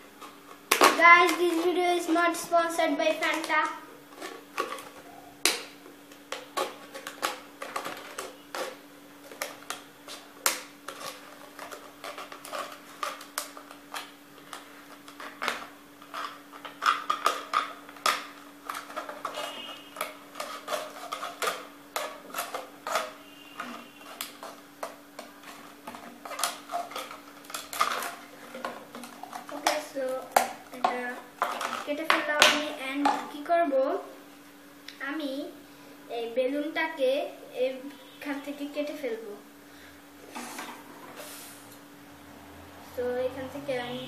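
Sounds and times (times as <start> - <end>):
knife cutting plastic bottle: 15.1 - 32.6.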